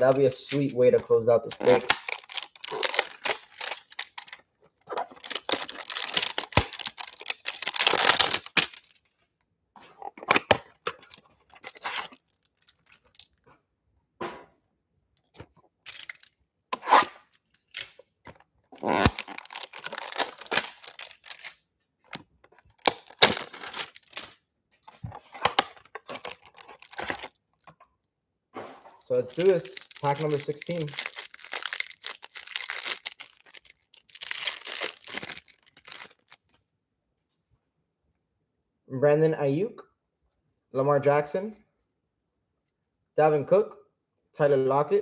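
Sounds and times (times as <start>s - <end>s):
plastic wrapping tearing and crinkling: 1.5s - 9.1s, 10.0s - 13.4s, 18.8s - 24.4s, 25.1s - 27.7s, 29.1s - 36.6s.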